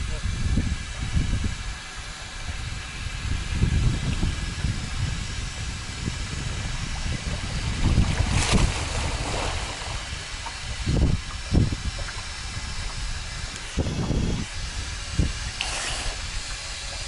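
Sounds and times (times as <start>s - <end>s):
wind buffeting microphone: 0.0s - 17.0s
river water lapping: 5.8s - 17.0s
swimmer splashing: 7.1s - 13.9s, 14.5s - 17.0s.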